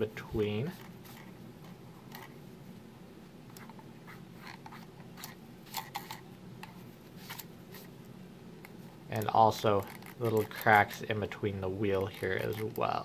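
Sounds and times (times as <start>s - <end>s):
fingernail scratching plastic: 9.6s - 11.1s, 11.9s - 12.8s.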